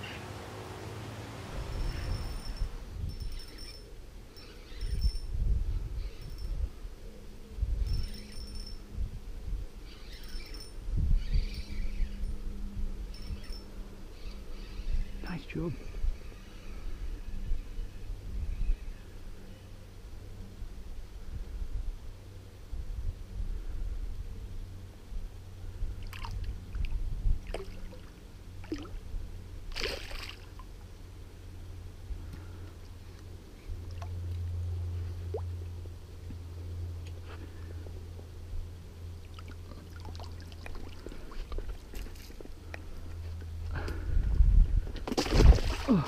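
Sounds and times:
faint high chirps: 1.7 - 5.3
fishing reel whirring: 1.7 - 5.3, 9.9 - 12.2
fish splashing in water: 29.7 - 30.6, 45.0 - 46.0.

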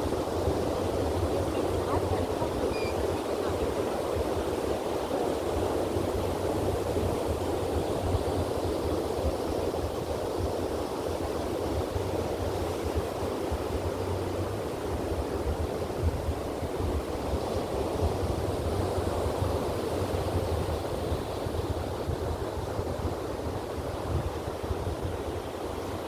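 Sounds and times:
ocean surf washing onto beach: 0.0 - 26.0
wind rumble on microphone: 0.0 - 26.0.

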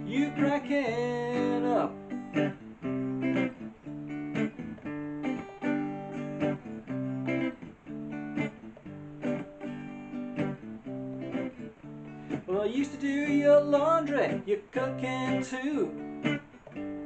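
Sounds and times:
clean electric guitar riff: 0.0 - 17.0.

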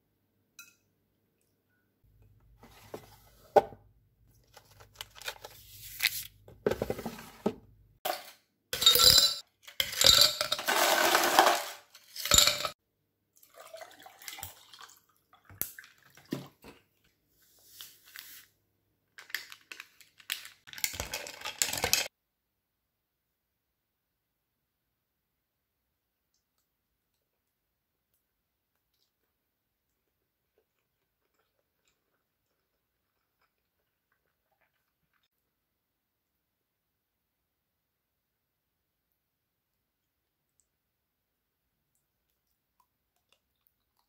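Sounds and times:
ice cubes clattering into glass: 8.1 - 12.7
dishes and spoon clinking: 8.1 - 12.8.

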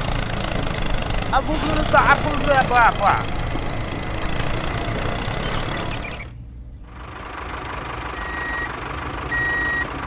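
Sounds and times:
vehicle engine running: 0.0 - 10.0
reversing beep: 8.2 - 8.7, 9.3 - 9.9.

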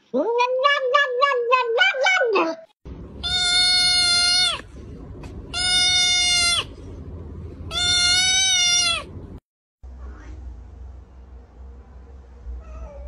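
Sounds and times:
kitten crying: 3.2 - 4.7, 5.5 - 6.7, 7.7 - 9.1.

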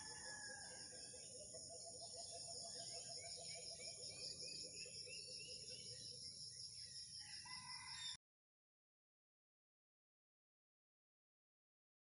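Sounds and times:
bird chirps: 0.0 - 8.2.

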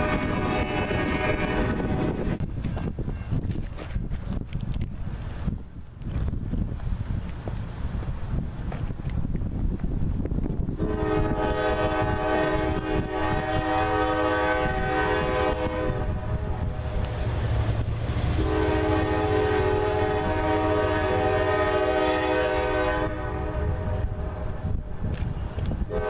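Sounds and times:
locomotive air horn blasts: 0.0 - 2.4, 10.8 - 16.8, 18.3 - 24.7
train rumble: 0.0 - 26.0.

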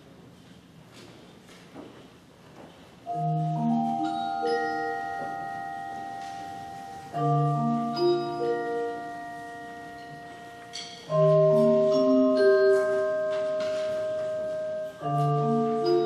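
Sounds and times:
wind band playing chords: 3.2 - 16.0.

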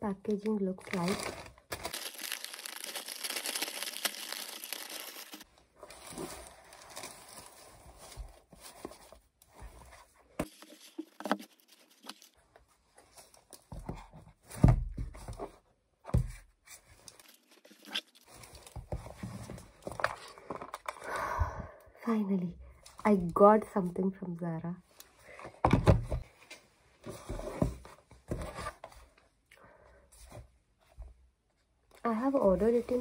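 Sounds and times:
paper wrapping crinkling: 0.8 - 9.0, 10.4 - 12.4, 17.0 - 18.8.

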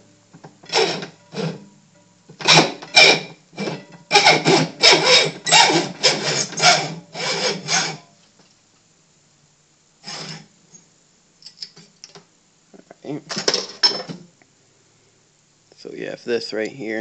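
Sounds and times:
hacksaw cutting metal: 0.7 - 1.6, 2.4 - 8.1.

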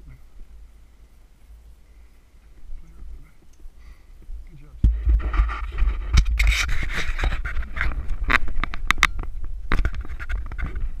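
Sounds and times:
camera handling scrapes and rustles: 5.0 - 11.0.

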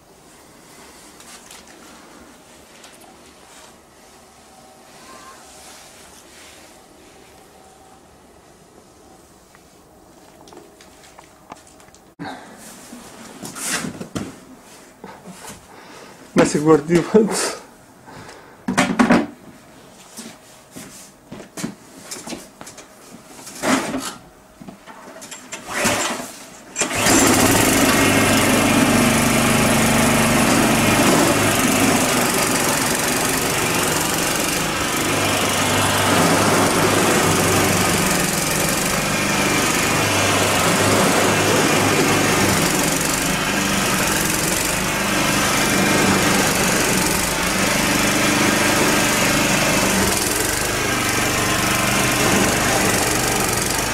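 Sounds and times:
small engine running: 26.8 - 53.9.

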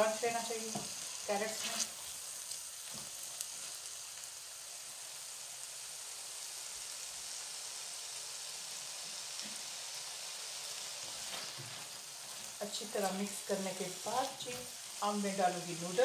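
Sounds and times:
food sizzling in oil: 0.0 - 16.0.

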